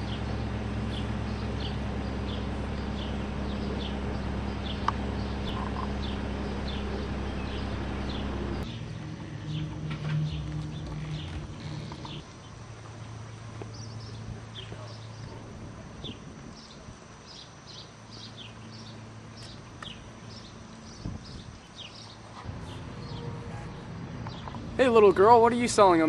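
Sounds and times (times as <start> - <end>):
bird calling: 0.0 - 12.6
outdoor hum: 0.0 - 26.0.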